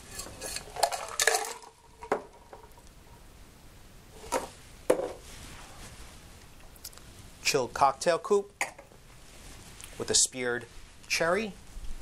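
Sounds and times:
ice rattling in cocktail shaker: 0.0 - 2.8.

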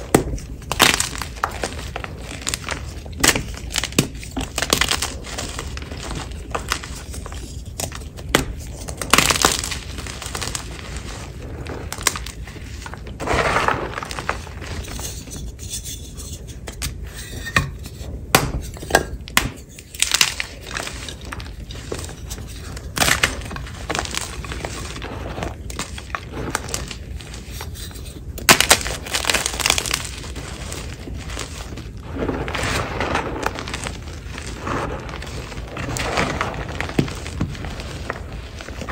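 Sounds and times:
chalk powder crumbling: 0.0 - 18.2, 19.6 - 38.9
chalk blocks crunching and snapping: 0.0 - 38.9.

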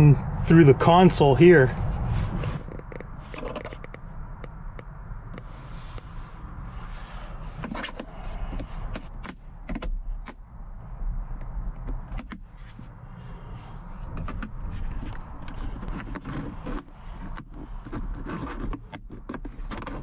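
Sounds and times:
steady low rumble: 0.0 - 17.9
plastic trim clicks and scrapes: 2.4 - 4.6, 7.5 - 10.4, 14.1 - 20.0.

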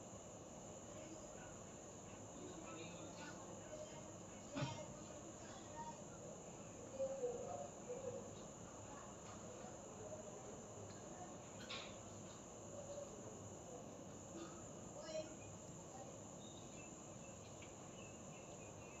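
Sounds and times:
faint chirps: 14.3 - 19.0
insect chirring: 14.9 - 19.0.

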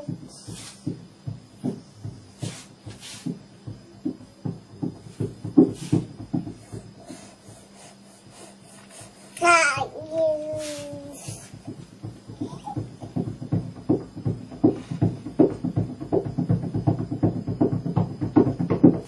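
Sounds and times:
short hissing bursts: 0.0 - 1.0, 2.3 - 3.6, 5.1 - 11.7
soft low knocks: 0.0 - 7.7, 9.0 - 19.0.

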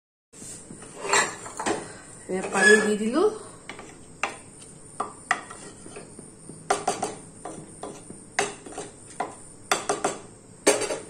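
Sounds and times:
spatula scraping a pot: 0.8 - 1.6, 2.3 - 4.4, 5.2 - 9.4.

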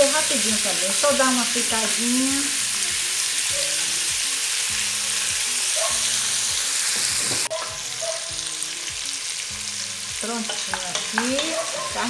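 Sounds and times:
meat sizzling in fat: 0.0 - 12.0
wooden spoon knocking pot: 10.5 - 11.6.

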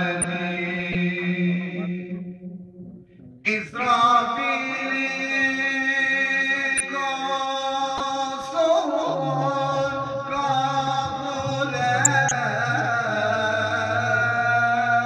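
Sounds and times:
men singing a slow chant: 0.0 - 2.1, 3.5 - 15.0
low steady tone: 12.1 - 12.9.

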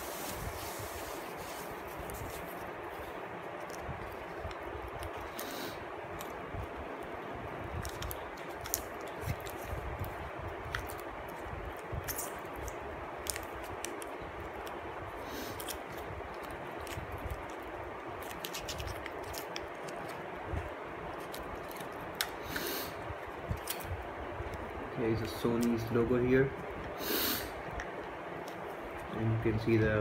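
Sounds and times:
steady background hiss: 0.0 - 30.0
plastic headphones clicking and scraping: 18.2 - 20.2.

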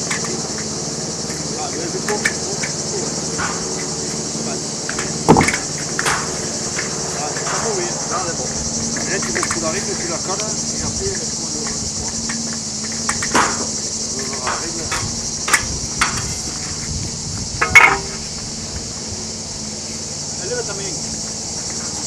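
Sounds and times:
insects buzzing: 0.0 - 22.0
concrete blocks knocking: 5.0 - 6.3, 17.6 - 18.2.

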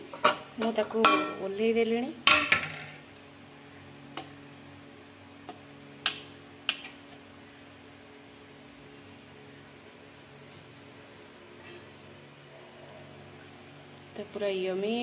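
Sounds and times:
faint steady hum: 0.0 - 15.0
metal ladle clinking on pot: 0.2 - 1.4.

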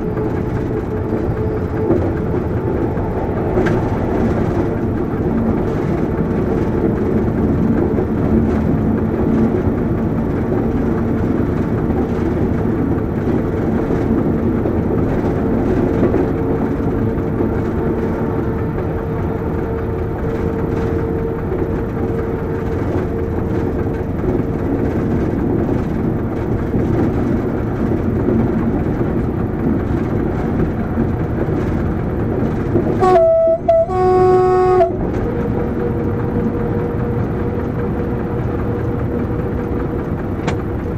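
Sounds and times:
diesel locomotive running: 0.0 - 40.9
wheel and rail noise: 0.0 - 40.9
locomotive horn blasts: 33.0 - 37.3.

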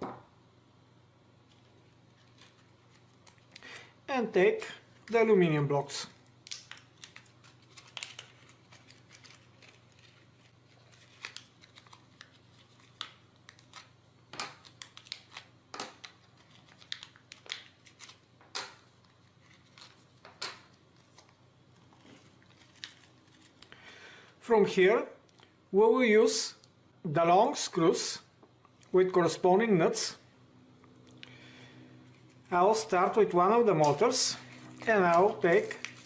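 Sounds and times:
plastic bag crinkling: 6.4 - 14.0, 14.6 - 18.2, 21.0 - 23.8, 33.8 - 36.0.

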